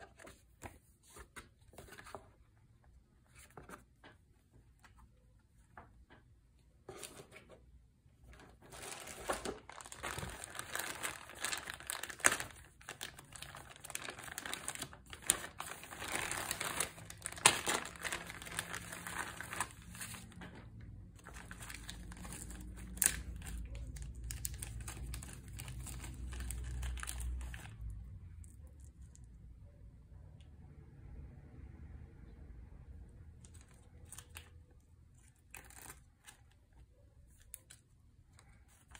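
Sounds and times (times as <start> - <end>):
plastic bags crinkling: 8.4 - 27.8.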